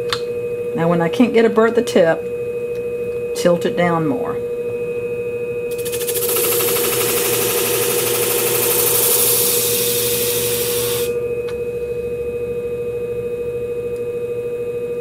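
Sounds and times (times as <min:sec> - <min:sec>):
machine hum: 0:00.0 - 0:13.3
blade grinding on abrasive disc: 0:05.7 - 0:11.1.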